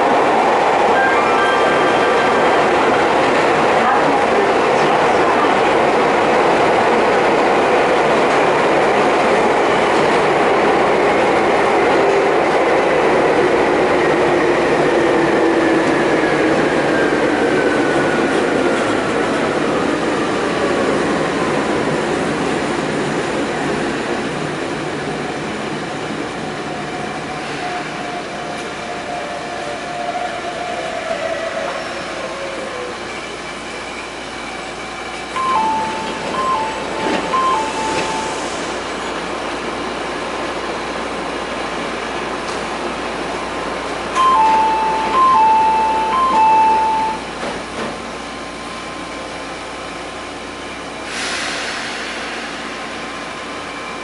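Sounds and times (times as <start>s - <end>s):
train wheel and running noise: 0.0s - 54.0s
train braking whine: 0.9s - 3.1s, 29.3s - 39.3s, 44.2s - 47.5s, 48.8s - 54.0s.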